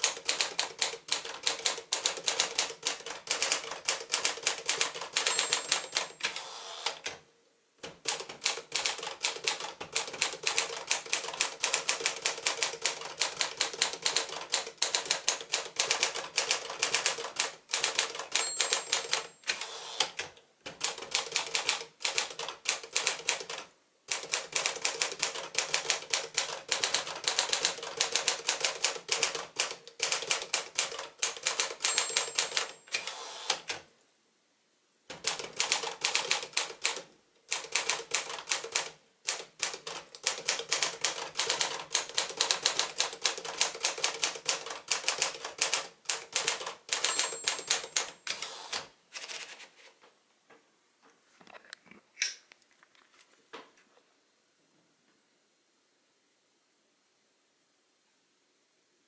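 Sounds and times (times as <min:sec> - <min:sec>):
typewriter typing clatter: 0:00.0 - 0:07.0, 0:07.8 - 0:33.8, 0:35.1 - 0:49.6
typewriter margin bell ringing: 0:05.0 - 0:06.4, 0:18.2 - 0:19.7, 0:31.7 - 0:33.1, 0:46.9 - 0:48.4.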